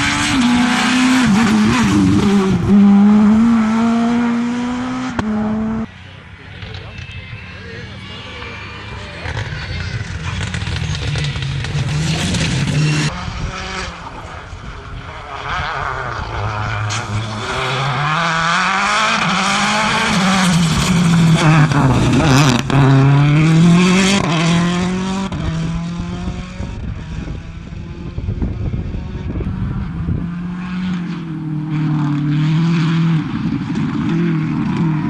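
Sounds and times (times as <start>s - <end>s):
rally car engine revving past: 0.0s - 5.9s, 15.1s - 35.0s.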